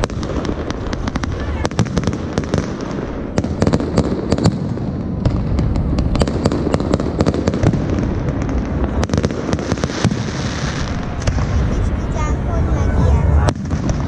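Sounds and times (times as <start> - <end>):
fireworks bangs and crackles: 0.0 - 14.0.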